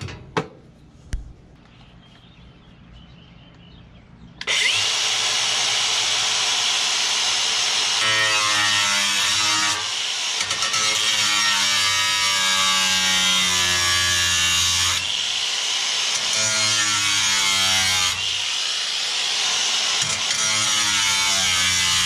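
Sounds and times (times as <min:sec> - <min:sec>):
angle grinder cutting steel: 0:04.4 - 0:22.0.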